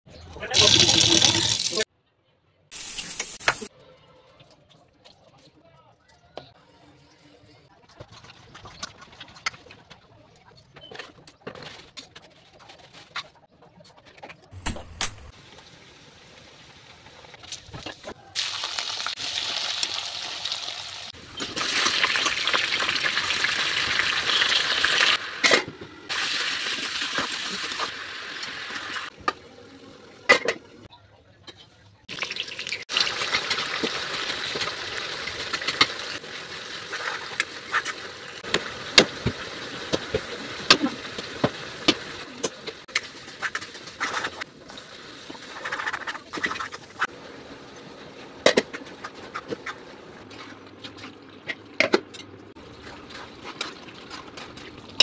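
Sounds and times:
cooking hiss: 0.6s - 1.9s, 2.7s - 3.7s, 15.2s - 30.4s.

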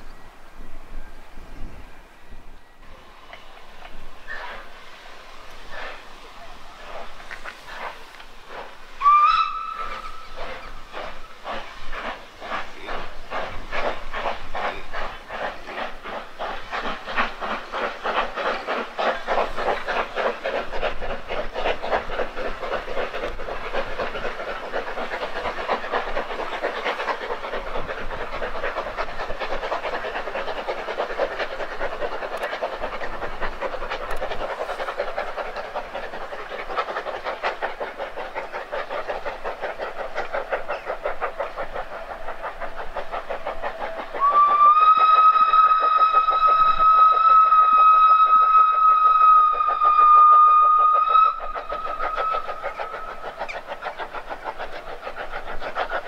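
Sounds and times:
hiss of steam: 0.0s - 56.0s
steam locomotive exhaust chuffing: 0.0s - 56.0s
steam whistle: 9.0s - 10.2s, 44.2s - 52.6s.

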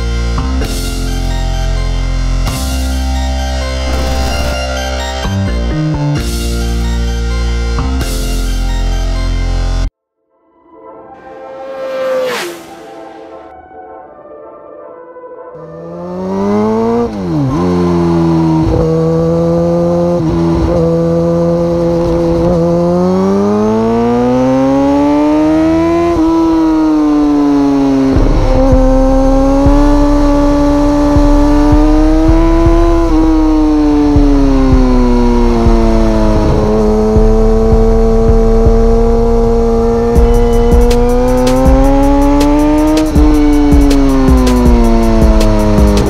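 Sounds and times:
motorcycle engine accelerating: 2.4s - 7.2s, 11.3s - 13.4s, 15.6s - 46.0s
heavy low rumble: 28.1s - 39.6s.

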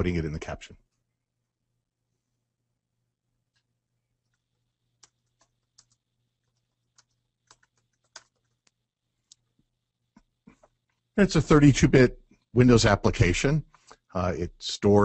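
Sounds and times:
faint typing on computer keyboard: 3.5s - 11.2s.

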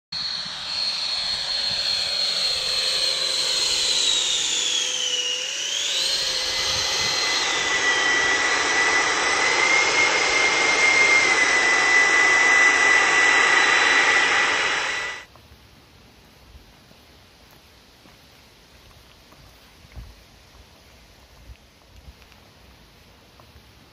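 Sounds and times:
electric ducted fans whining: 0.2s - 15.2s.

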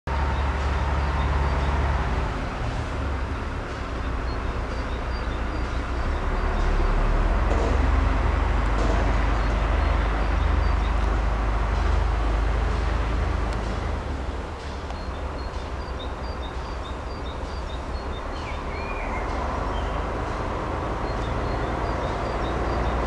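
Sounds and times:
freight train wheels rumbling on track: 0.1s - 23.0s.

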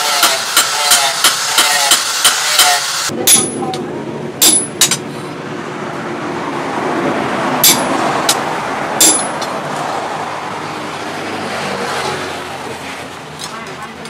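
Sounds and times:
steady mechanical noise: 0.0s - 10.7s
hammer blows on anvil: 0.2s - 3.8s, 4.4s - 5.1s, 7.6s - 8.4s, 9.0s - 9.5s.

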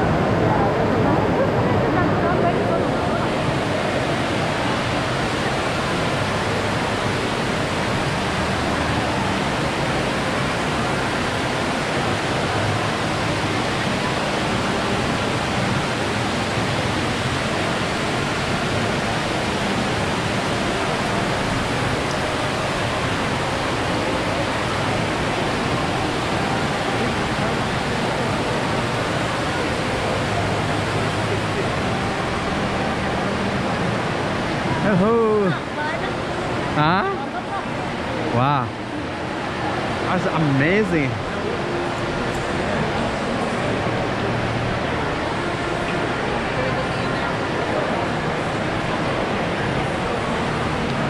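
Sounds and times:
crowd murmur: 0.0s - 51.0s.

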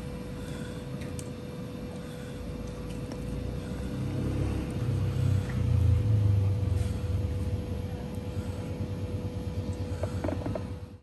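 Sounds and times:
faint hum: 0.0s - 11.0s
motor vehicle passing: 3.4s - 7.4s.

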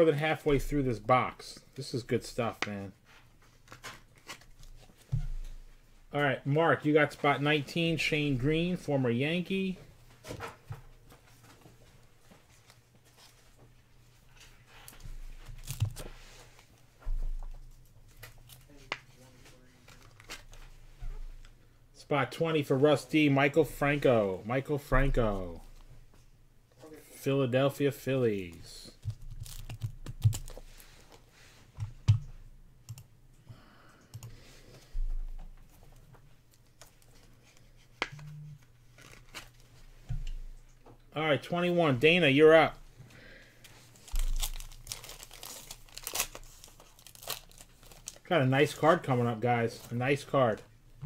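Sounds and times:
trading cards rustling and clicking: 28.4s - 31.2s, 35.7s - 39.7s, 43.6s - 48.9s.

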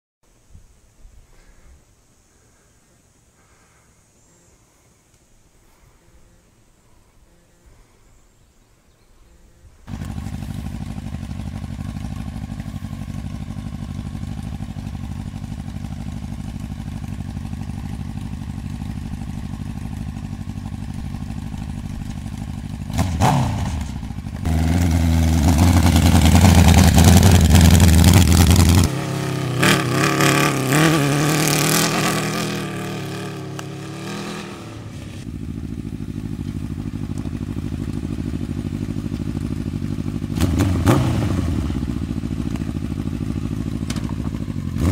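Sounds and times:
motorcycle engine idling and revving: 9.8s - 44.9s.

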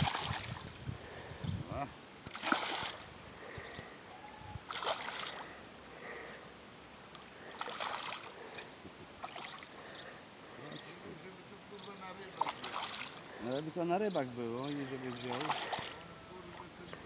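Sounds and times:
fish thrashing and splashing: 0.0s - 0.6s, 2.3s - 3.0s, 4.7s - 5.5s, 7.4s - 8.4s, 9.2s - 9.7s, 12.4s - 13.2s, 15.2s - 16.1s.

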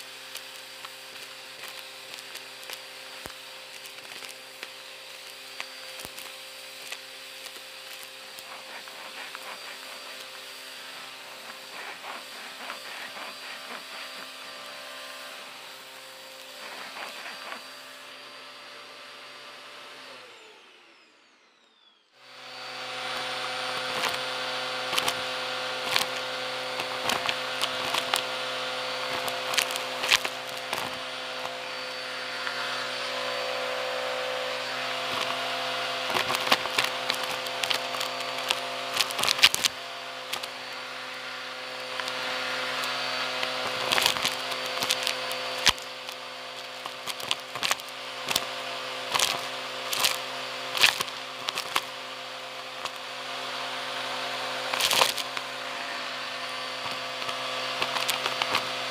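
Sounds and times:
vacuum cleaner humming: 0.0s - 58.9s.

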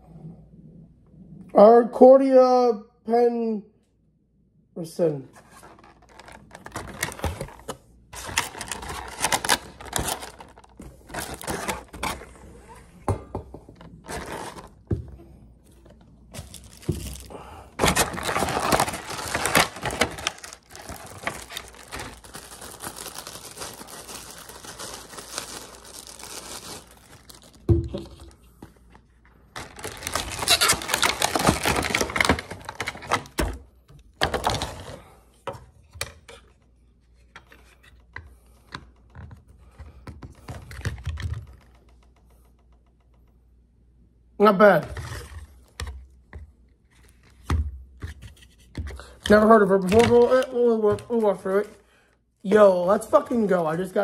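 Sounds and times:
plastic packaging crinkling: 5.4s - 12.4s, 14.0s - 14.8s, 15.8s - 28.4s, 29.5s - 33.4s.

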